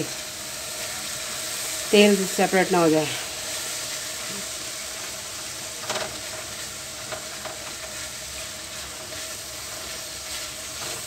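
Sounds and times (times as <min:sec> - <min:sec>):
sauce sizzling in oil: 0:00.0 - 0:11.0
spatula scraping wok: 0:03.0 - 0:11.0.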